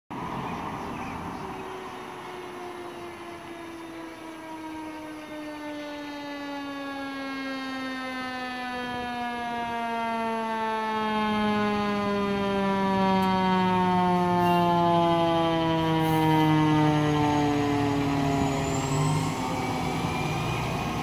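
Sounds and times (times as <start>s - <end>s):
deeper siren tone: 0.1s - 21.0s
fire engine siren winding down: 0.1s - 21.0s.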